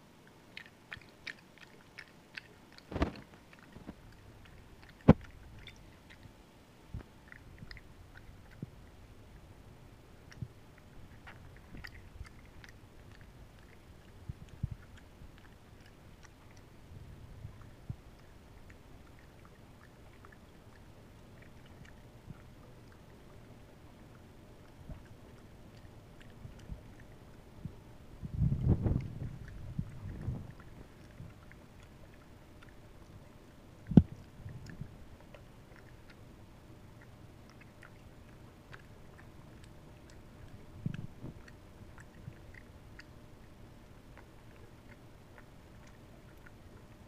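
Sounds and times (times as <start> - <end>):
monkey chewing and lip smacking: 0.0 - 47.0
low rumbling: 26.1 - 31.6.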